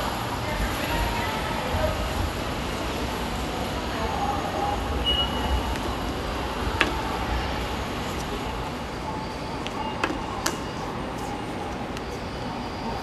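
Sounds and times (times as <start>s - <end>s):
steady station hum: 0.0s - 13.0s
card reader high beep: 5.0s - 6.1s.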